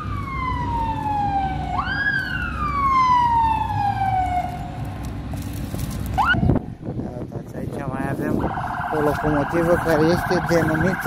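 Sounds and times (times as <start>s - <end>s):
siren wailing: 0.0s - 4.7s, 8.4s - 11.0s.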